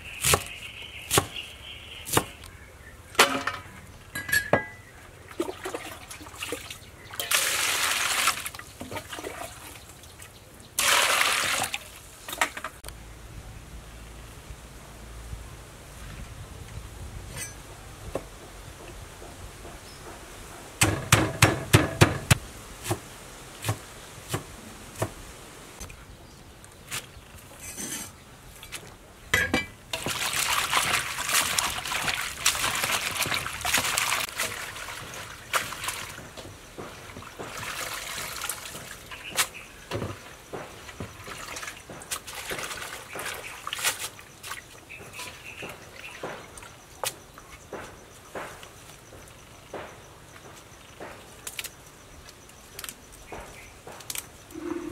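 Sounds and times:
water splashing in basin: 0:05.3 - 0:12.4, 0:30.0 - 0:46.8.

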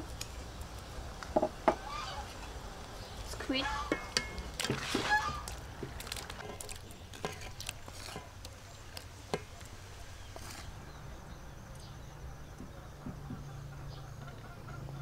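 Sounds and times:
wooden spatula scraping metal colander: 0:03.3 - 0:08.4, 0:10.2 - 0:10.8.

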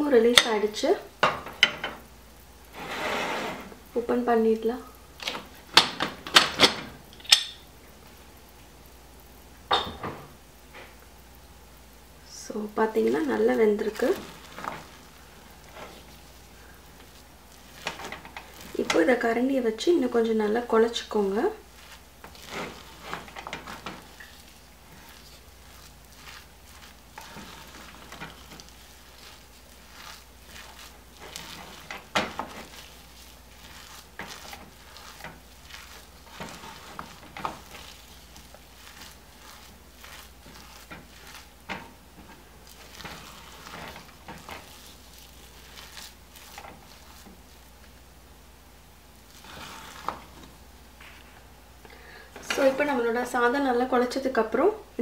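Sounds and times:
spoon mashing soft rice: 0:12.9 - 0:51.4.

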